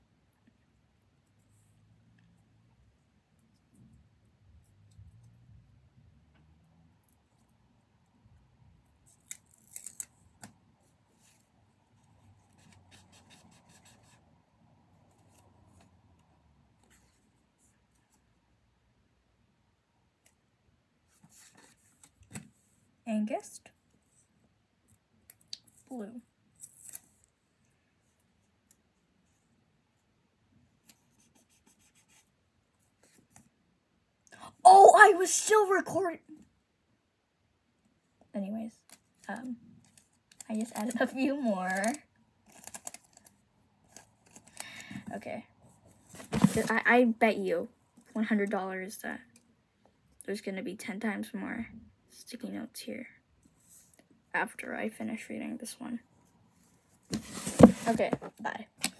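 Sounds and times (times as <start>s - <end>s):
book pages leafed through: 46.1s - 46.8s, 57.1s - 58.3s
paper crackles: 46.1s - 46.8s
paper scratching and rustling: 46.1s - 46.8s, 57.1s - 58.3s.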